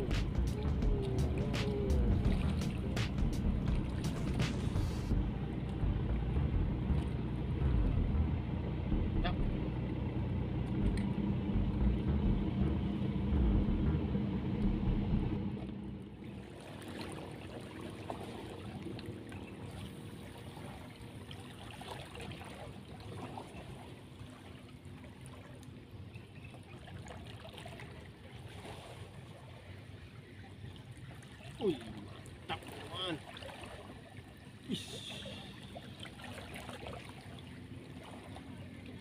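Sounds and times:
splashes of wading: 0.0s - 12.6s, 15.5s - 39.0s
low motor drone: 0.0s - 21.8s
seawater lapping: 0.0s - 39.0s.

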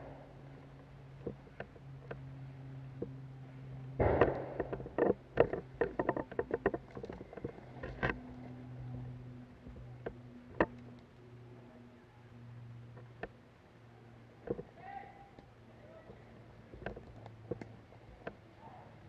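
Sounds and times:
steady low hum: 0.0s - 19.0s
airsoft gunfire pops: 4.0s - 4.8s.

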